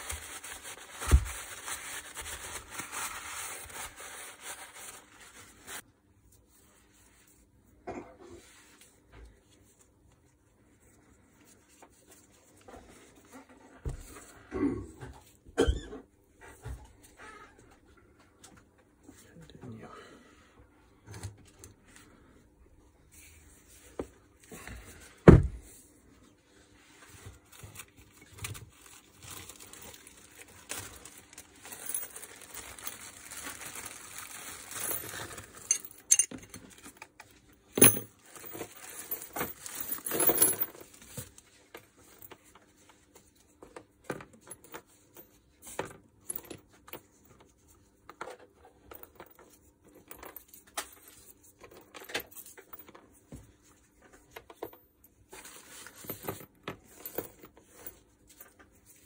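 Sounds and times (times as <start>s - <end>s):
scraping and rustling: 0.0s - 5.8s, 26.7s - 37.0s, 37.8s - 42.9s
heavy thump: 25.2s - 25.6s
small metal screws clinking: 34.7s - 36.8s, 37.8s - 40.8s.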